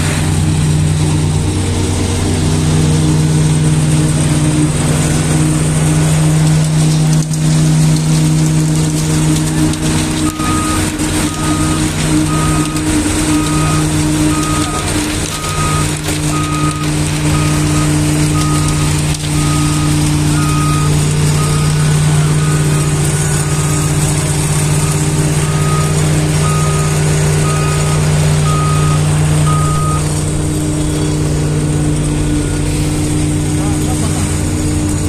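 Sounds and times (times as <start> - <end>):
heavy machine engines running: 0.0 - 35.0
warning beeper: 10.3 - 33.9.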